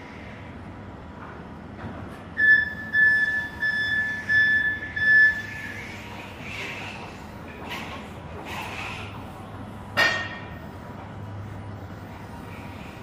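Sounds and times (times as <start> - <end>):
forklift warning beeps: 2.4 - 5.8.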